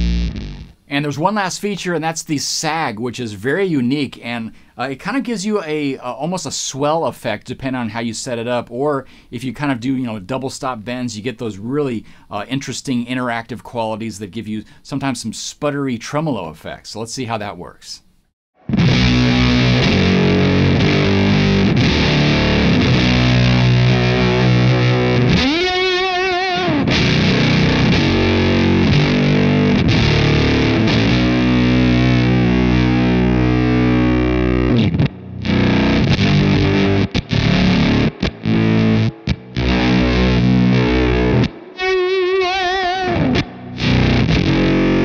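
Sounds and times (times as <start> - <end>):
fuzzed electric guitar chords: 0.0 - 0.8, 18.6 - 45.0.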